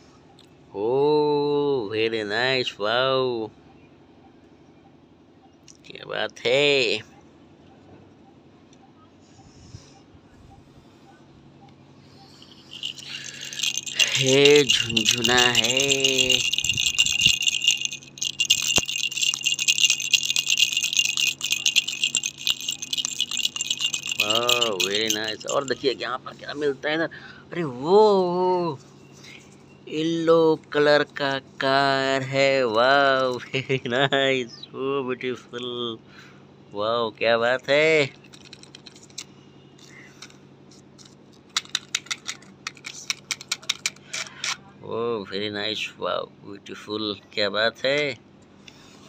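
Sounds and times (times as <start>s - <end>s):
faint steady hum: 0.0s - 49.0s
plastic baby rattle shaking: 12.4s - 26.1s, 38.1s - 39.3s, 41.0s - 44.6s
plastic toy clicking in sand: 12.7s - 26.0s, 41.0s - 44.6s.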